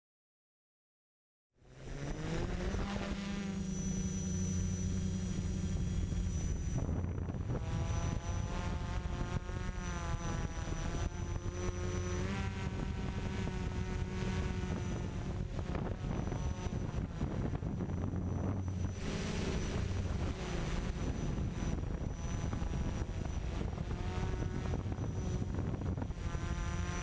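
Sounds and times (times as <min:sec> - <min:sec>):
drone propellers whirring: 0:01.6 - 0:27.0.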